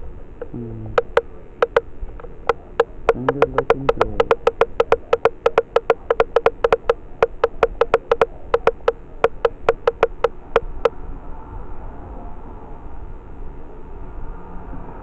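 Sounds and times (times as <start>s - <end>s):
sharp ringing taps: 0.4s - 10.9s.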